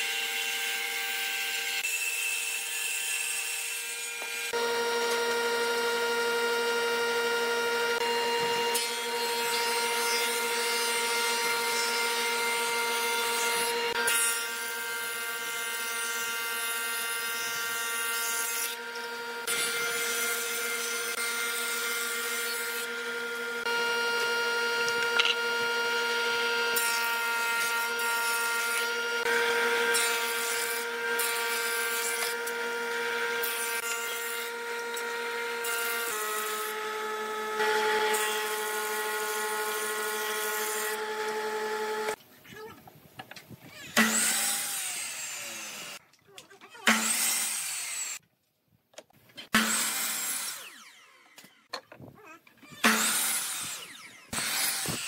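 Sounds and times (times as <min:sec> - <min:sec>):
thickness planer planing boards: 0:00.0 - 0:42.7, 0:43.7 - 0:46.0, 0:46.6 - 0:48.2, 0:49.5 - 0:55.0
woodworking machine motor whine: 0:04.0 - 0:17.7, 0:18.8 - 0:42.2, 0:49.6 - 0:51.8, 0:52.7 - 0:55.0
table saw ripping a board: 0:07.9 - 0:42.2, 0:43.8 - 0:46.0, 0:46.7 - 0:48.2, 0:49.5 - 0:51.7, 0:52.6 - 0:55.0.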